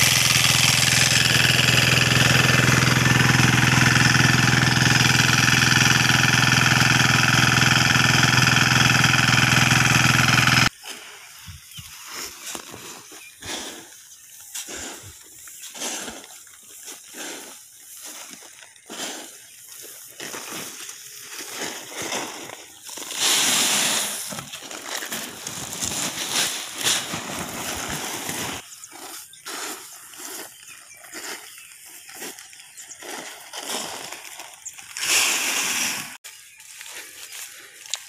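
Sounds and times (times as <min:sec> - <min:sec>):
grain rustling and scraping: 0:10.7 - 0:36.2
grain pouring into sack: 0:20.2 - 0:30.6
sack being handled: 0:20.3 - 0:28.6.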